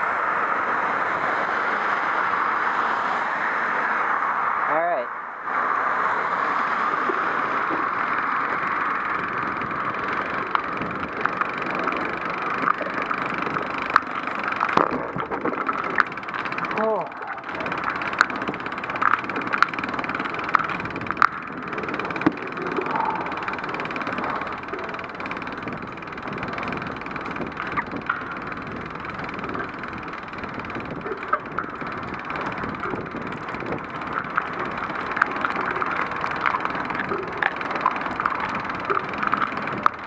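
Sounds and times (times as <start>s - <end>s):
rain and wet road hiss: 0.0s - 8.4s
sharp clicks: 7.1s - 40.0s.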